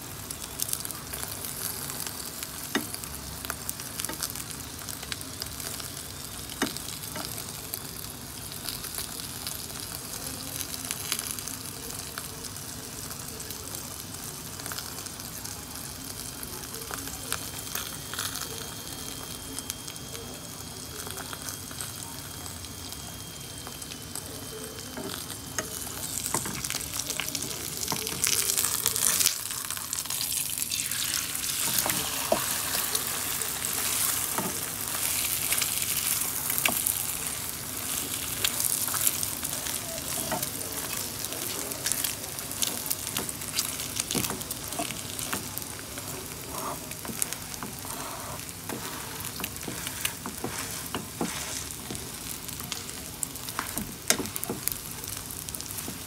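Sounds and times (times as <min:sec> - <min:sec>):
egg sizzling in frying pan: 0:00.0 - 0:56.0.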